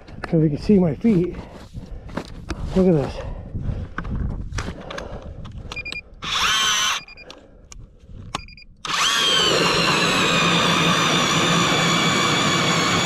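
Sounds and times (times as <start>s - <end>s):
electric ice auger motor whine: 6.2s - 7.0s, 8.8s - 13.0s.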